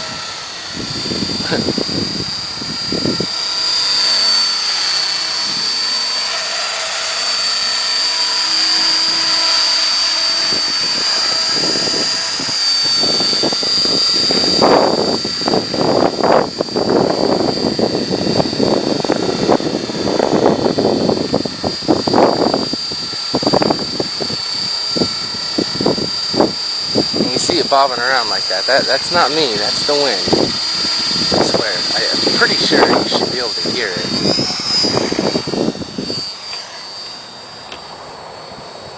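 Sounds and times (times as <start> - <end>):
wind buffeting microphone: 0.0 - 4.4, 10.3 - 36.3
rc helicopter whine: 0.0 - 38.9.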